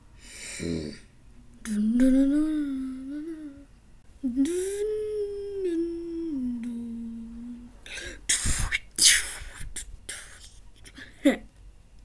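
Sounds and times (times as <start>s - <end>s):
person humming: 0.4s - 1.0s, 1.6s - 8.1s.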